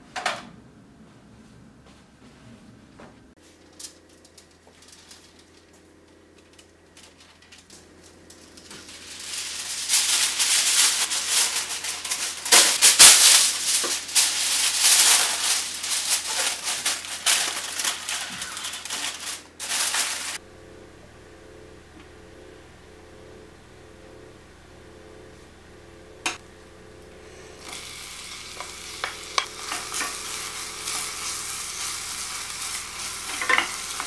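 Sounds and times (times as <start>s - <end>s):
aluminium foil crinkling: 3.4s - 20.4s, 27.5s - 34.0s.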